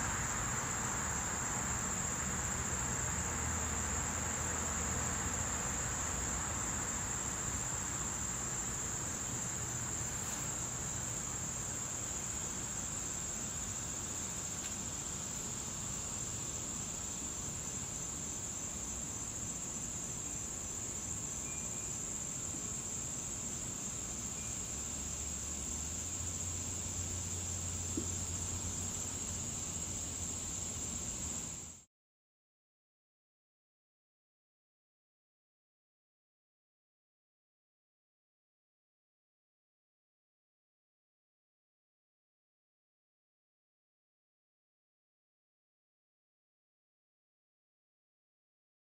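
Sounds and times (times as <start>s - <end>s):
high-pitched insect trill: 0.0s - 31.9s.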